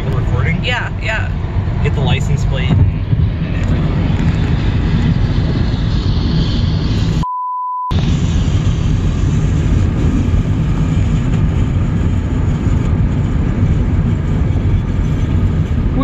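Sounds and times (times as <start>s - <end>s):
road and wind noise in car: 0.0s - 7.2s, 7.9s - 16.0s
pure bleep tone: 7.2s - 8.0s.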